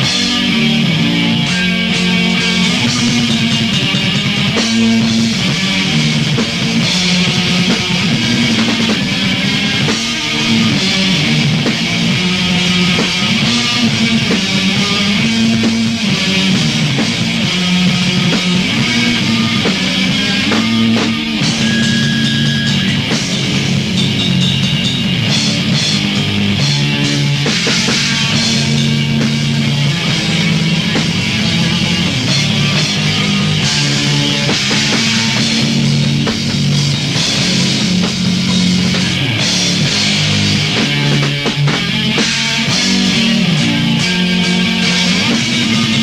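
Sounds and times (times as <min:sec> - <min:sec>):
distorted electric guitar riff: 0:00.0 - 0:46.0
drum kit: 0:00.0 - 0:46.0.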